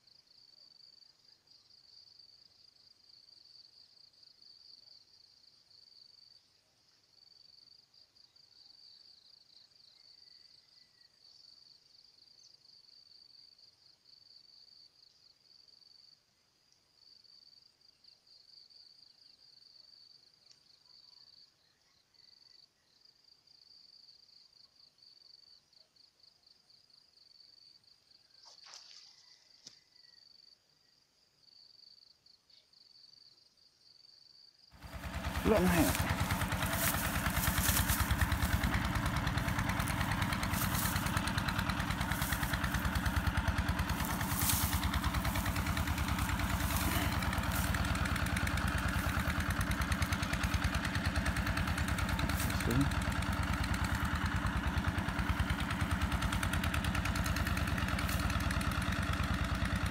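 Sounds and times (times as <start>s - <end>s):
insects chirring: 25.0s - 59.4s.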